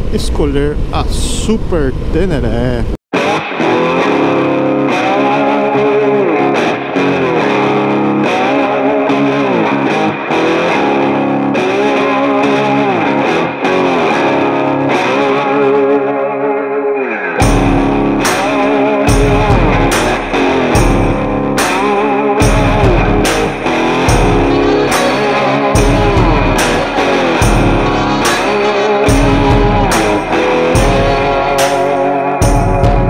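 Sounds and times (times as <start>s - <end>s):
distorted electric guitar: 0.0s - 33.0s
drum hits: 17.4s - 33.0s
heavy bass: 17.4s - 33.0s.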